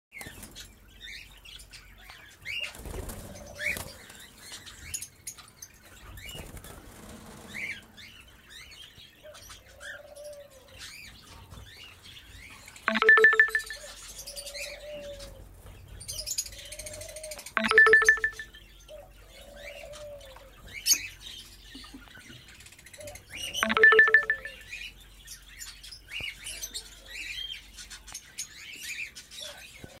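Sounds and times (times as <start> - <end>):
wings flapping: 2.7 - 4.0.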